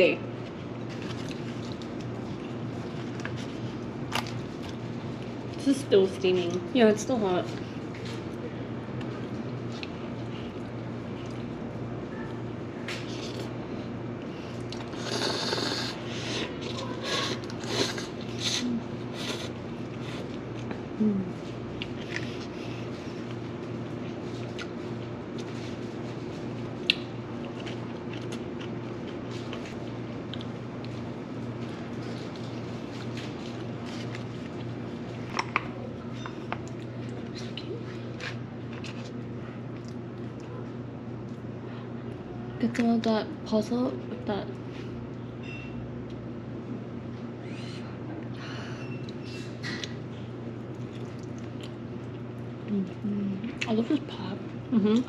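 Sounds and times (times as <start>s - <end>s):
steady low hum: 0.0s - 55.0s
person chewing: 0.8s - 5.4s, 9.0s - 11.6s, 14.2s - 23.5s, 24.1s - 31.1s, 36.4s - 41.4s, 48.8s - 53.7s
slurping noodles: 14.9s - 16.0s.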